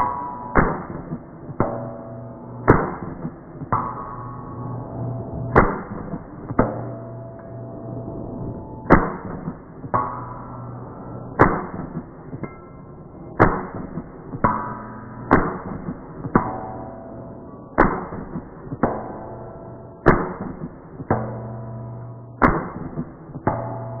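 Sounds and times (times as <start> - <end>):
weaker echoing bang: 0.0 - 7.6, 8.8 - 12.6
gunshots: 0.6 - 1.6, 8.9 - 9.9, 11.4 - 12.4, 13.4 - 14.5, 15.2 - 16.5, 17.8 - 19.0, 20.0 - 21.1, 22.4 - 23.4.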